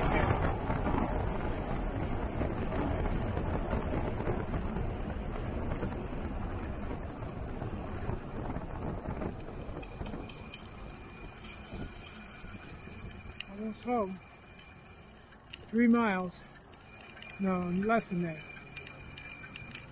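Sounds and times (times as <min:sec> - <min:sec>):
wind rushing over microphone: 0:00.0 - 0:15.8
road noise: 0:00.0 - 0:19.9.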